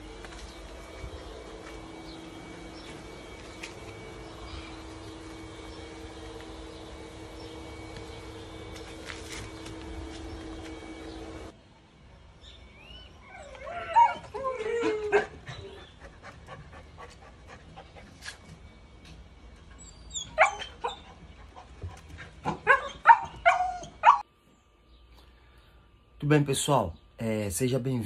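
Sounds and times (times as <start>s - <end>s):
puppy whining: 12.8s - 16.0s, 19.7s - 21.2s, 22.4s - 24.2s
puppy yipping and barking: 20.1s - 21.0s, 22.5s - 24.2s.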